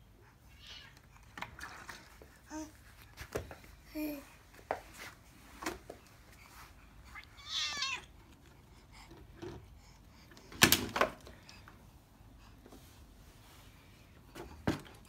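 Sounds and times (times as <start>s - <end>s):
cat meowing: 7.1s - 8.1s.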